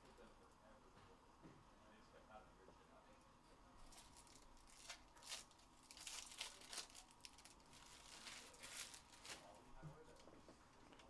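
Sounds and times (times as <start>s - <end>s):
foil wrapper crinkling: 3.9s - 9.6s.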